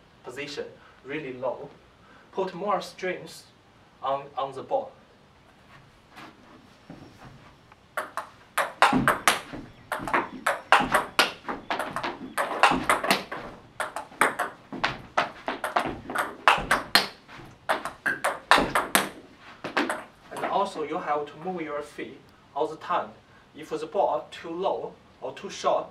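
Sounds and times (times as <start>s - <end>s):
table tennis ball clicks: 8.0s - 20.5s.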